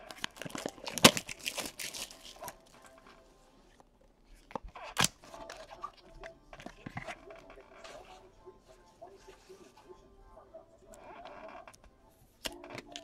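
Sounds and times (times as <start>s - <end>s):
foil wrapper tearing and crinkling: 0.0s - 2.8s.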